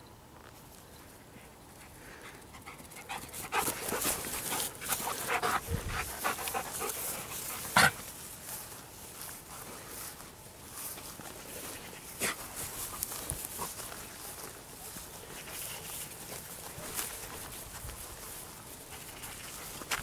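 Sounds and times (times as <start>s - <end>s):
dog panting and snuffling: 1.4s - 8.2s, 11.4s - 14.6s, 15.2s - 20.0s.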